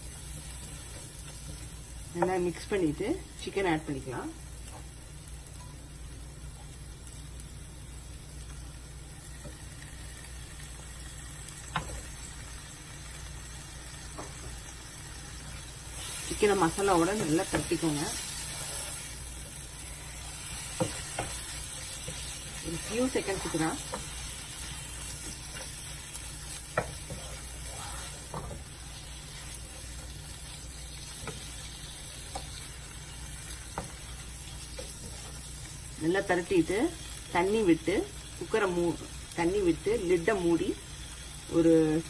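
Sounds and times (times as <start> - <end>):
chicken sizzling in frying pan: 0.0 - 42.0
wooden spatula scraping pan: 26.8 - 28.6.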